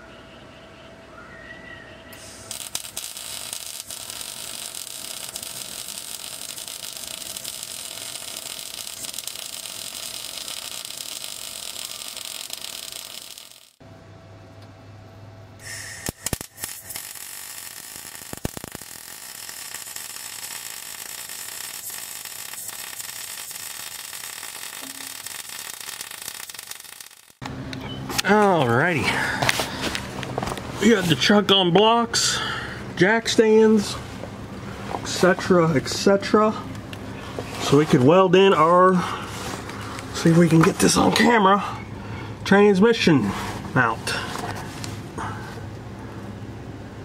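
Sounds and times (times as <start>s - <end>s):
welding arc crackling: 2.2s - 13.8s, 15.6s - 27.5s, 37.6s - 41.4s.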